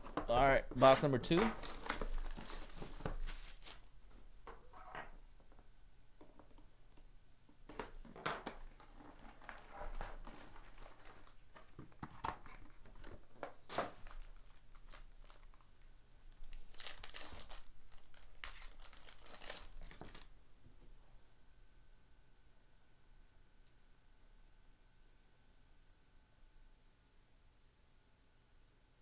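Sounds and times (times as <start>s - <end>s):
plastic wrap rustling: 0.0s - 4.2s, 8.0s - 20.3s
foil wrappers crinkling: 0.9s - 3.9s, 8.7s - 20.3s.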